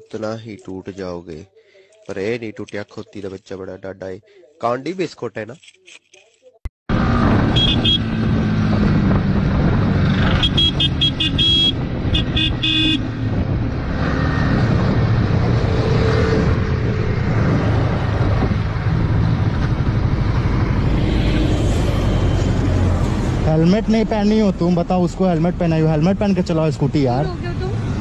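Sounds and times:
wind noise: 7.0s - 23.4s.

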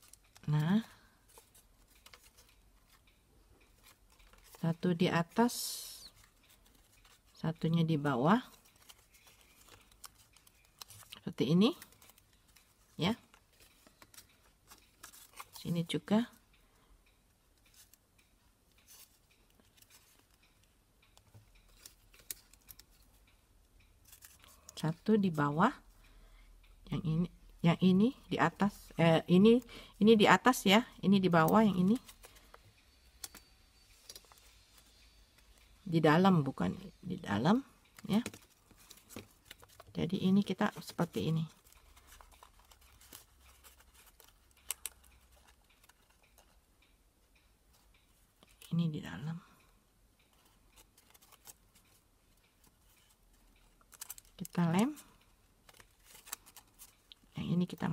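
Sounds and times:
paper rustling and crinkling: 0.0s - 3.0s, 6.1s - 7.4s, 8.4s - 15.7s, 38.0s - 46.6s, 55.6s - 57.8s
paper ticks and rustles: 0.0s - 16.4s, 17.4s - 25.9s, 27.7s - 36.3s, 37.3s - 57.9s.

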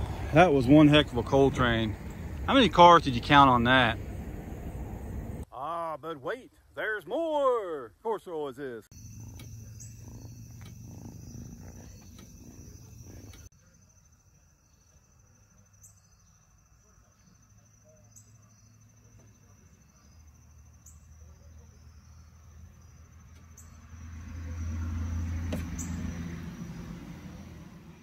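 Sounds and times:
cat purring: 8.9s - 13.5s
high insect-like buzz: 8.9s - 14.1s.

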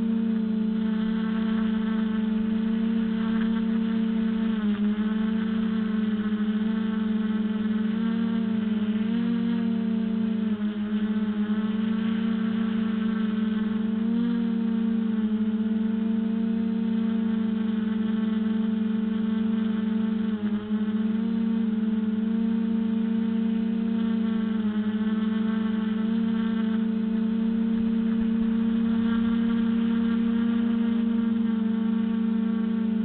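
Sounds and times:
quadcopter propellers buzzing: 0.0s - 33.0s.

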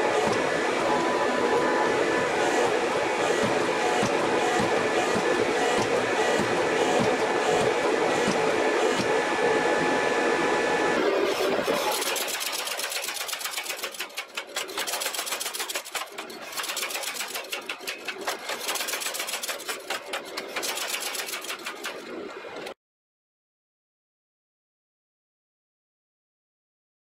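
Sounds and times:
gas forge burner roaring: 0.0s - 22.8s
power hammer striking hot steel: 2.4s - 9.2s.

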